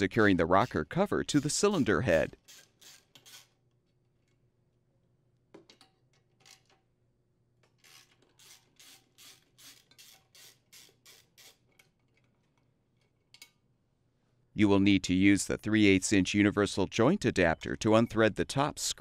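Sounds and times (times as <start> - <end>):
hand ratchet clicking: 2.4 - 3.6, 7.7 - 12.0.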